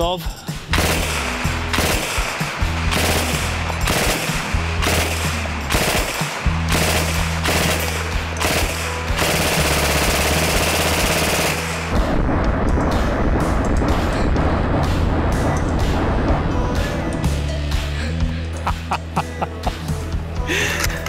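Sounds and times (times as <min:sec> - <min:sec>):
submachine gun firing bursts: 0:00.7 - 0:12.0.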